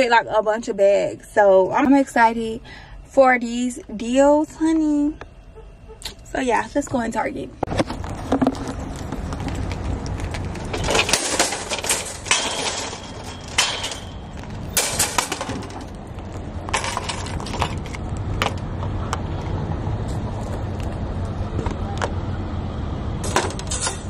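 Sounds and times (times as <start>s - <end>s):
cart frame rattling and clanking: 7.7s - 18.7s, 23.2s - 24.0s
shopping cart wheels rumbling: 7.7s - 18.8s.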